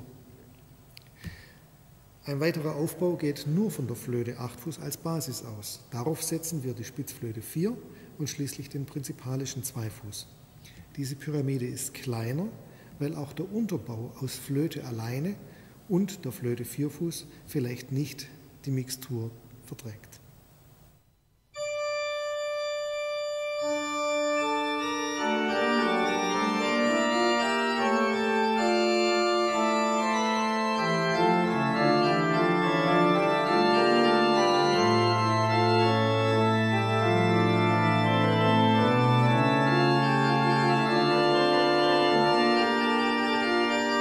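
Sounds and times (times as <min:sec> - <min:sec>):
pipe organ playing: 0:02.3 - 0:10.2, 0:21.6 - 0:44.0.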